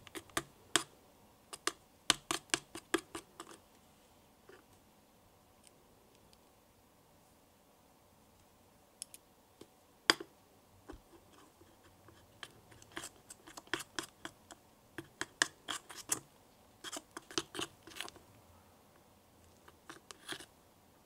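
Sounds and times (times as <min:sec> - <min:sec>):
spatula scraping a glass bowl: 0:15.2 - 0:16.2, 0:16.8 - 0:18.1, 0:19.8 - 0:20.5.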